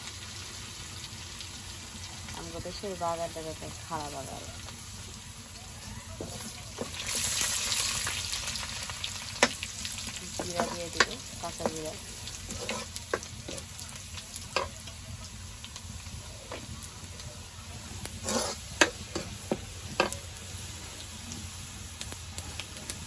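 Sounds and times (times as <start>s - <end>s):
oil sizzling in a pan: 0.0s - 23.0s
ladle scraping and clicking on pan: 10.3s - 13.8s, 14.5s - 14.8s, 18.1s - 20.2s.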